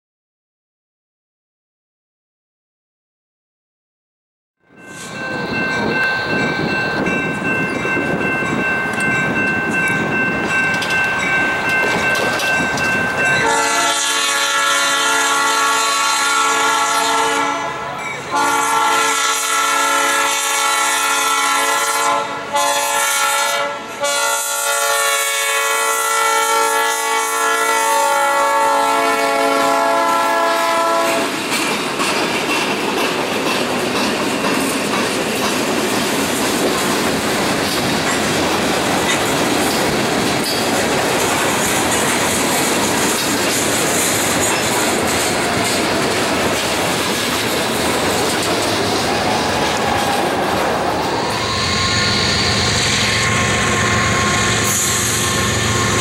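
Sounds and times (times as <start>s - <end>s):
diesel locomotive approaching: 4.6s - 56.0s
train wheels clicking over rail joints: 5.8s - 13.4s, 31.2s - 51.5s
train air horn blasts: 13.4s - 31.4s, 51.0s - 56.0s.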